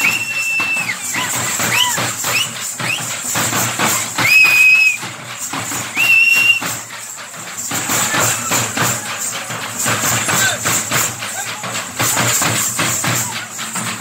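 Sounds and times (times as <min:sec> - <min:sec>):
shrill whistle blasts: 0:00.0 - 0:03.3, 0:04.2 - 0:05.0, 0:05.9 - 0:06.9
drums beating steadily: 0:00.0 - 0:14.0.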